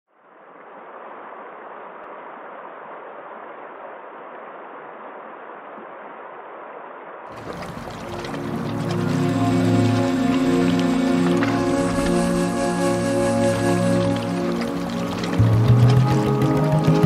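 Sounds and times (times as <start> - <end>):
stream rushing over rocks: 7.3 - 17.0
music: 7.4 - 17.0.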